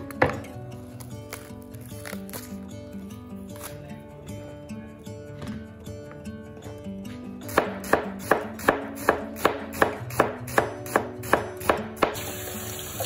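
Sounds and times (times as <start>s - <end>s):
knife slicing onion on board: 7.4s - 12.4s.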